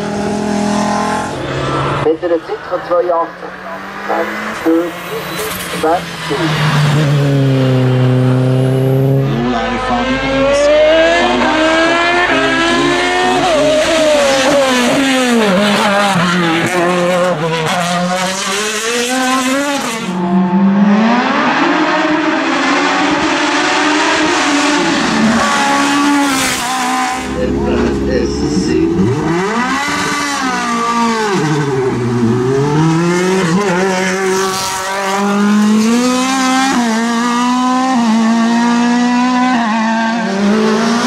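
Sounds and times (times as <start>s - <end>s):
race car engine accelerating: 3.2s - 41.0s.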